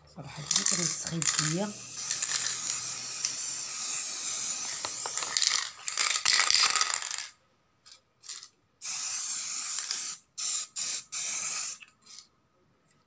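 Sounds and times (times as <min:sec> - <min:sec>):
spray paint can hissing: 0:00.5 - 0:07.2, 0:08.8 - 0:12.2.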